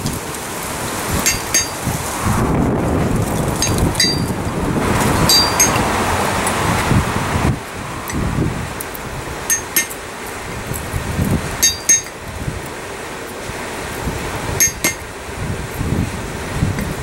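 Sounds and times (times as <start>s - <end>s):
hammer striking chisel on steel: 1.2s - 1.8s, 3.6s - 4.3s, 5.3s - 5.8s, 9.5s - 10.0s, 11.6s - 12.2s, 14.6s - 15.0s.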